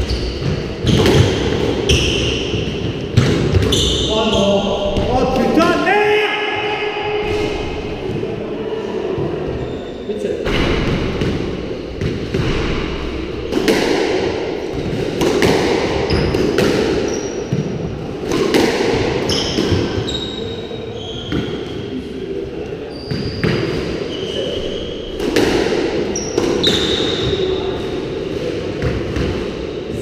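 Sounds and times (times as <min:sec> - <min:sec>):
shoes squeaking on wooden floor: 0:00.0 - 0:02.8, 0:03.5 - 0:05.0, 0:19.3 - 0:21.8
squash ball hitting rackets and walls: 0:00.0 - 0:05.5, 0:10.4 - 0:21.8, 0:23.0 - 0:29.8.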